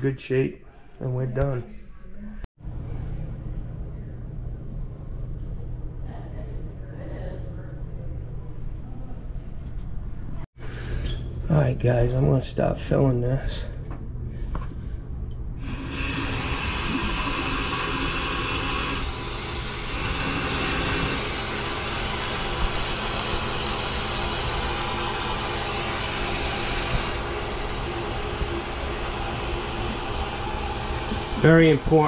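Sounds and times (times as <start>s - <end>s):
water rushing through pipes: 15.6s - 32.0s.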